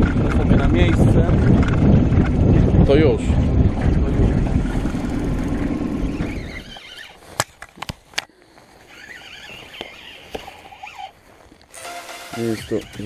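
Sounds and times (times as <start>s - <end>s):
boat engine running: 0.0s - 7.1s.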